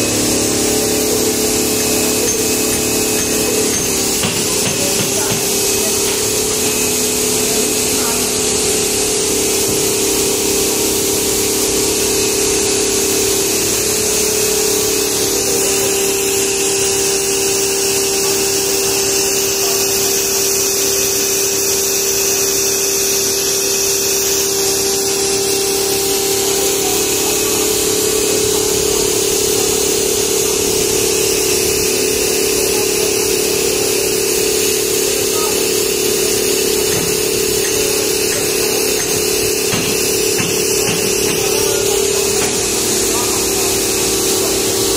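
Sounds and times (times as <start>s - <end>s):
machine humming with steady tone: 0.0s - 44.9s.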